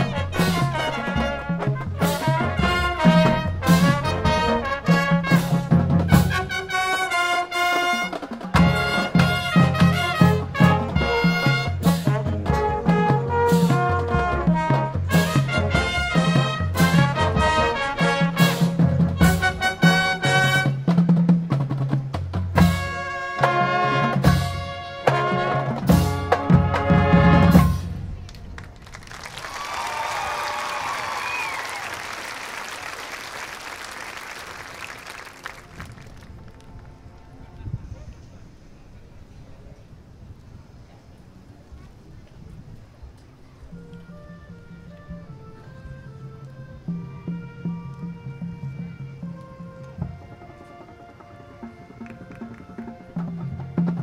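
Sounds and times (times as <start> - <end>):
low brass: 0.0 - 21.2, 22.6 - 28.2
trumpets and saxophones: 0.0 - 21.2, 22.6 - 28.2, 43.6 - 54.0
drumline drum hits: 0.0 - 28.1
marching band playing: 0.0 - 36.7, 43.6 - 54.0.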